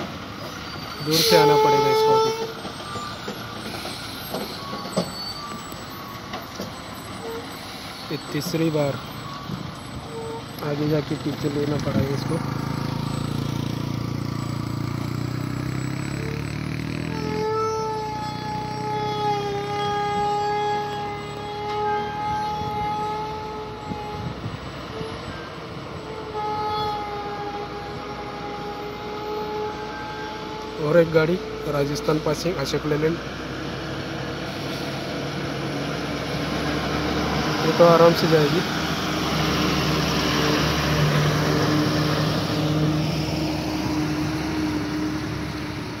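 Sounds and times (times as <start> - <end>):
truck diesel engines running: 0.0 - 46.0
long steady horn-like tone: 1.0 - 2.6, 10.1 - 11.0, 16.2 - 33.0.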